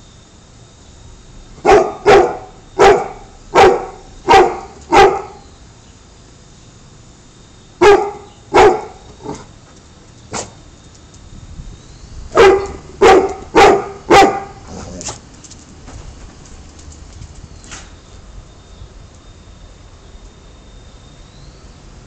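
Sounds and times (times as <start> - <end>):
dog barking: 1.6 - 5.4, 7.8 - 9.4, 12.4 - 15.0.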